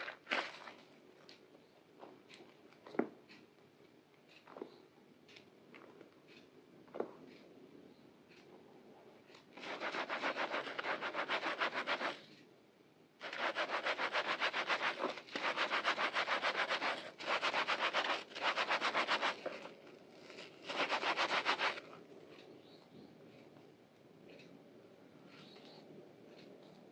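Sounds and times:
sponge scrubbing in soapy water: 0:00.0 - 0:00.8, 0:09.6 - 0:12.2, 0:13.2 - 0:21.9.

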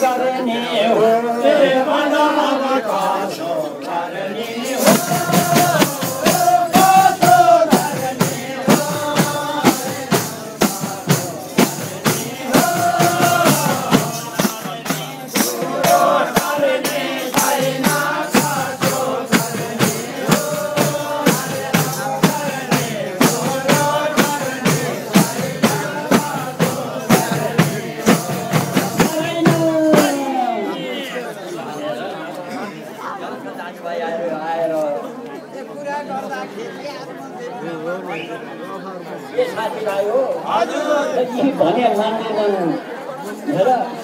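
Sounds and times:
men singing together: 0:00.0 - 0:31.2
frame drums beating: 0:04.7 - 0:30.7.

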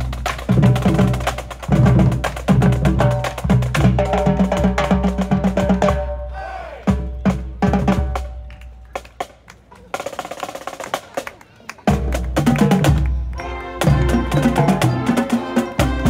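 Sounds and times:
snare and bass drums: 0:00.0 - 0:06.2, 0:06.9 - 0:11.2, 0:11.9 - 0:16.0
marching band playing: 0:00.0 - 0:16.0.

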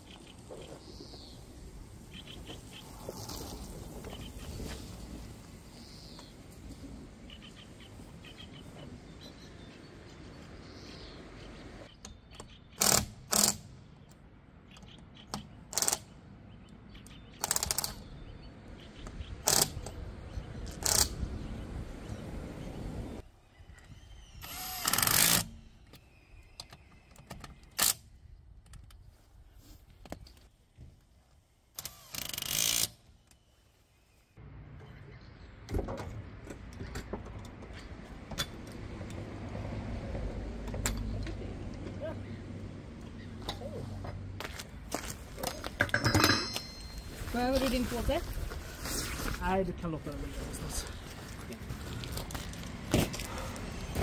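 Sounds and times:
power tool bursts on wheel nuts: 0:12.8 - 0:13.6, 0:24.4 - 0:25.6, 0:31.8 - 0:33.0.

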